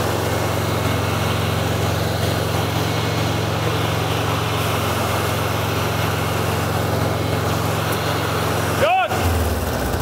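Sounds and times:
car engine running: 0.0 - 10.0
cooling fan blowing: 0.0 - 10.0.

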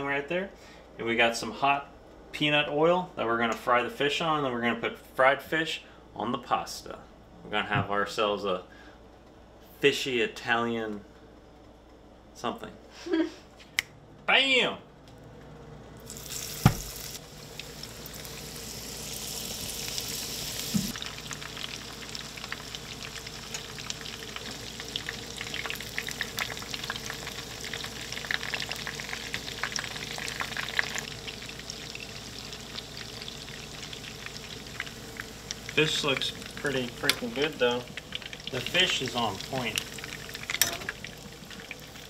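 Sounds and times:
fish frying in oil: 16.0 - 42.0.

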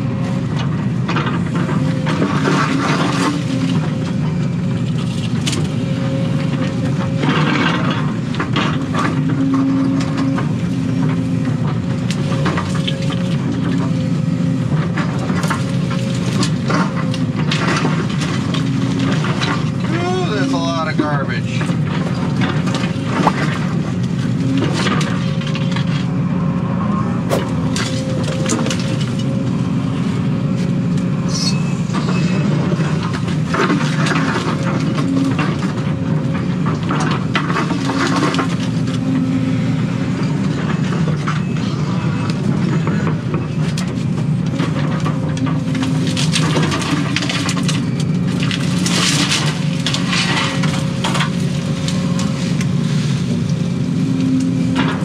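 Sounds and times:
excavator diesel engine running: 0.0 - 55.0
roots cracking and snapping: 27.3 - 29.6, 43.7 - 54.5.

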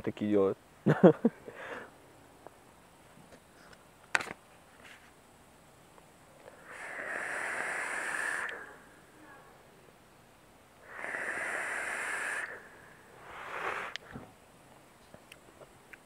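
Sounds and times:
hissing airflow: 6.2 - 9.8, 10.6 - 14.6.

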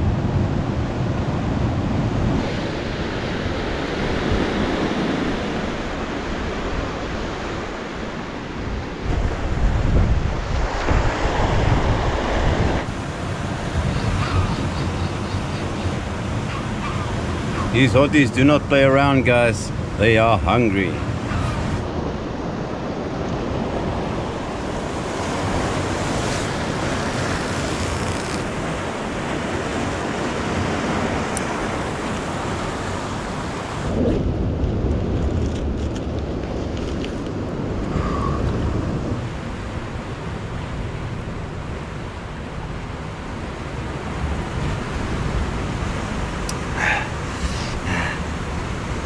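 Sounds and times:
wind rumbling on microphone: 0.0 - 49.0
surf breaking against rocks: 9.1 - 13.3.

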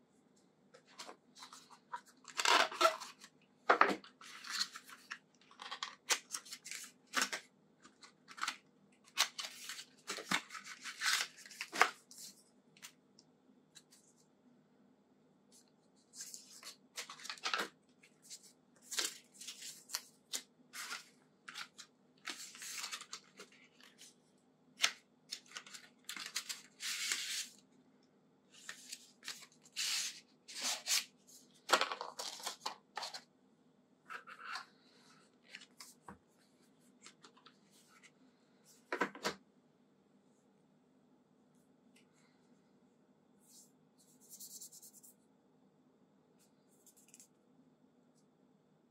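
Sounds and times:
packaging rustling and tearing: 8.3 - 12.0, 18.8 - 24.0, 25.3 - 27.5.

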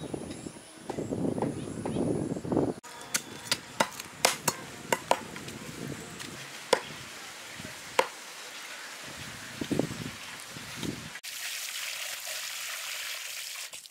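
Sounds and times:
cleavers chopping on wooden block: 3.1 - 5.5, 6.7 - 6.9, 8.0 - 8.2.

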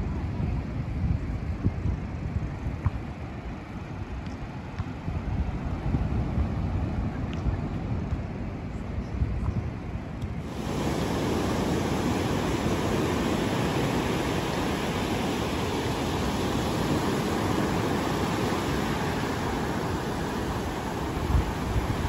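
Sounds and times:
surf breaking on shore: 10.4 - 22.0.

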